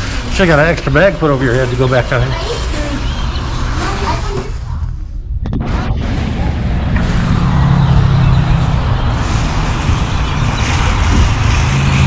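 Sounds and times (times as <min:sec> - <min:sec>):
vehicle engine hum: 0:00.0 - 0:12.0
flock of birds chattering: 0:02.4 - 0:04.2.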